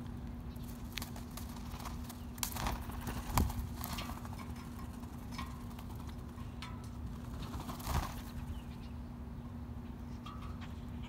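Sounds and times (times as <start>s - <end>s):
steady low hum: 0.0s - 11.0s
bird wings flapping: 0.6s - 6.3s, 7.1s - 8.5s.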